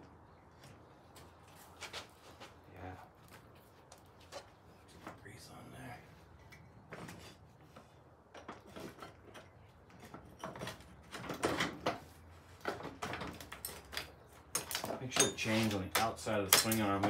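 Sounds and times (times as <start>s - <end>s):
metal parts knocking and scraping: 8.3s - 17.0s.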